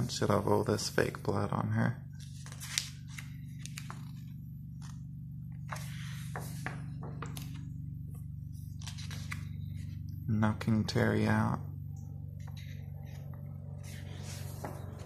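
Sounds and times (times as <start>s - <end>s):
steady low hum: 0.0s - 15.0s
page swishing: 5.7s - 7.7s, 8.7s - 9.6s, 13.8s - 15.0s.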